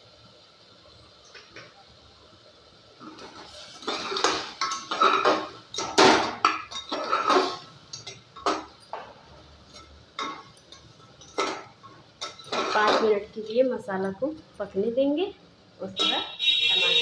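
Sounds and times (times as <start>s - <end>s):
spatula scraping a pot: 6.7s - 7.7s.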